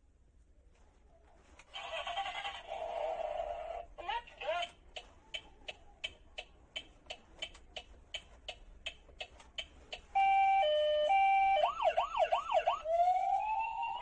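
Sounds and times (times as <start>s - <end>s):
toy steering wheel ticking: 4.5s - 13.5s
two-tone toy siren: 10.1s - 14.0s
fast wailing siren: 10.2s - 14.0s.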